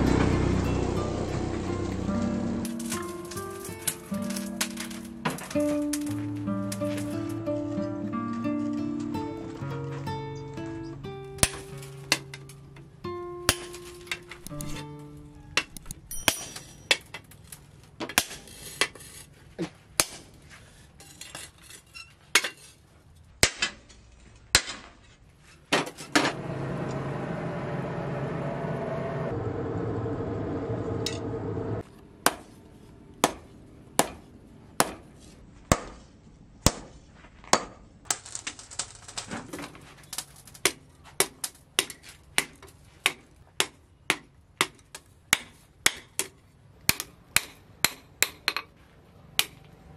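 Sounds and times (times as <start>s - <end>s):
hammer striking steel on anvil: 11.4s - 12.6s, 13.5s - 14.8s, 15.5s - 17.2s, 33.2s - 34.2s, 34.8s - 35.0s, 40.6s - 48.7s
forge rushing noise: 26.0s - 31.9s.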